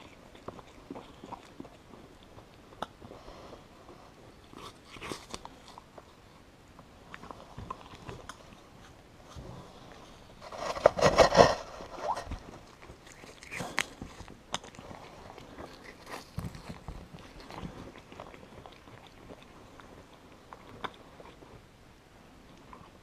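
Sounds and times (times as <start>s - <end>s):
animal crunching ice pop: 10.4s - 21.4s.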